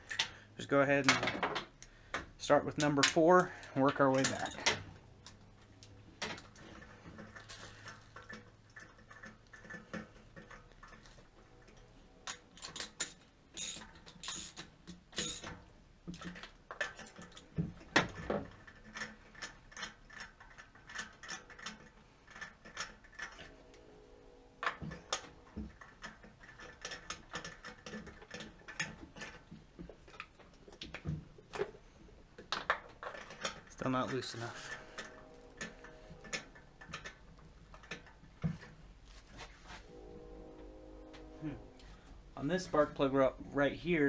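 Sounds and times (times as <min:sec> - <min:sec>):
ratchet wrench clicking: 0:13.0 - 0:14.6.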